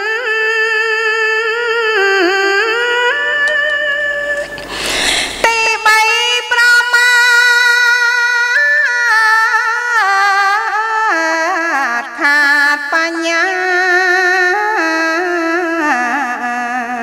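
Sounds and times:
breath: 4.5 - 5.5
woman chanting: 5.2 - 17.0.

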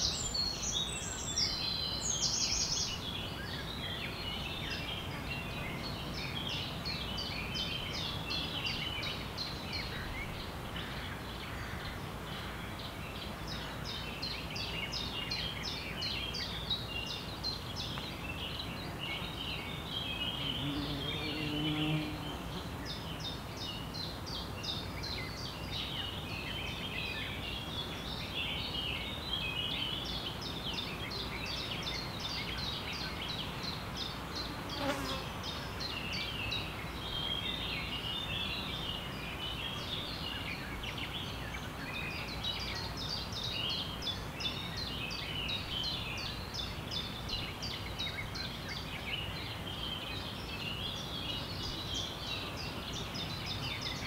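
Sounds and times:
birds chirping and trilling: 0.0 - 54.0
insect buzzing: 20.2 - 23.0, 34.2 - 35.8.

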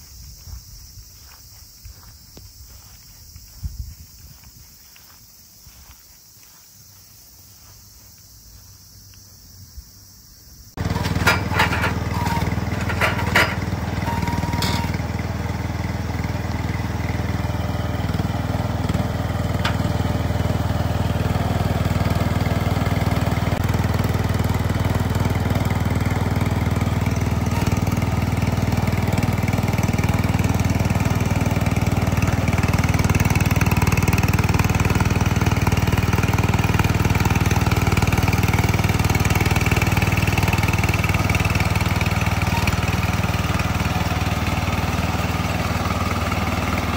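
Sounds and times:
knocks and clatters: 10.8 - 15.0
planter engine running: 10.8 - 46.9.

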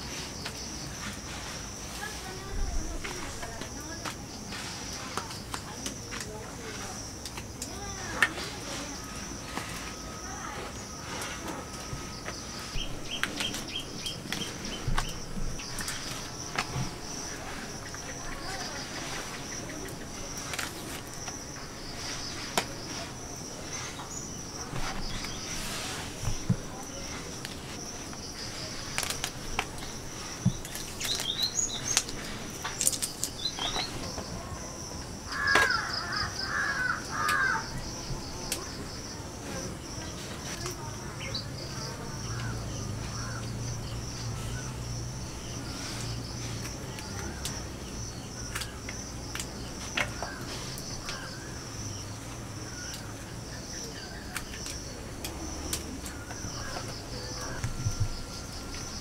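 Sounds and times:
mushrooms snapping by hand: 27.4 - 34.2, 54.2 - 57.8.

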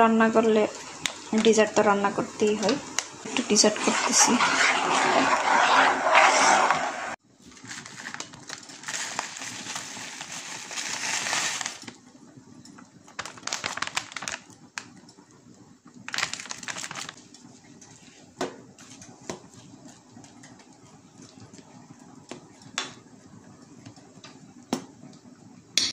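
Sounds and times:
plastic packet rustling: 7.5 - 12.0, 13.1 - 14.6, 16.1 - 17.2.

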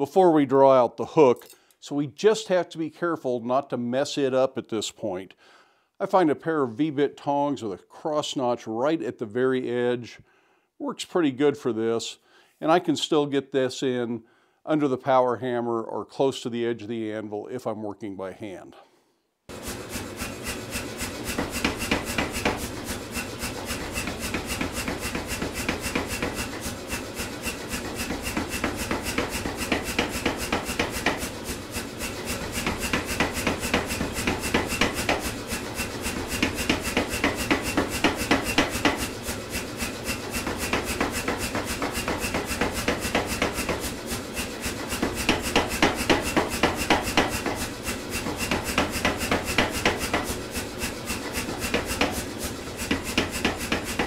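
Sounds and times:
power hammer striking hot steel: 19.5 - 54.0.

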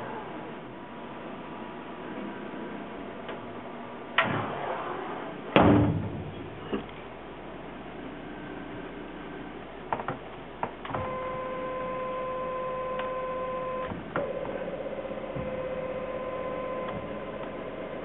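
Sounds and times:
stepper motor whine: 10.9 - 18.0.

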